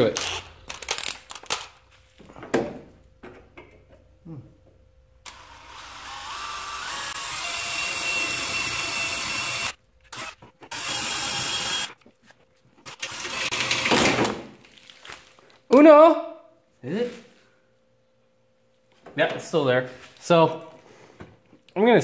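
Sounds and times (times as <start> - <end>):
cordless drill boring metal: 5.3 - 11.9, 12.8 - 13.9.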